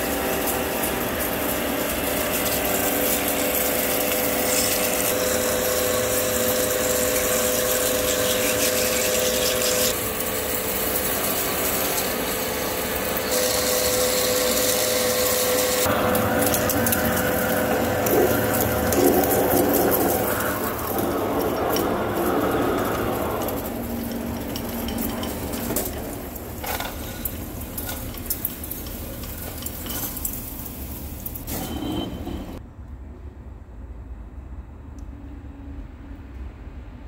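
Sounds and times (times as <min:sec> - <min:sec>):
hiss of metal cutting: 0:00.0 - 0:23.6
drill boring into steel: 0:00.0 - 0:26.6
lathe running hum: 0:00.0 - 0:29.8.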